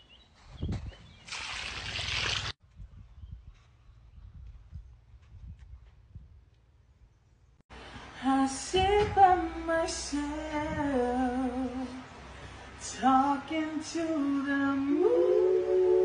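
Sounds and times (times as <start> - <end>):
woman singing unaccompanied: 8.2 - 12.1, 12.8 - 16.0.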